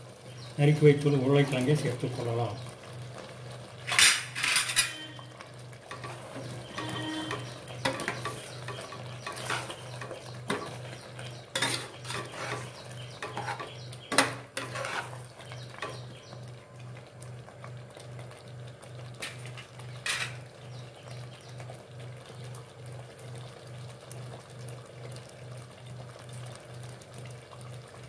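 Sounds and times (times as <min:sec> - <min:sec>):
ladle scraping metal pot: 0:05.9 - 0:10.8, 0:11.5 - 0:16.0, 0:19.2 - 0:20.4
ladle stirring thick curry: 0:05.9 - 0:16.1.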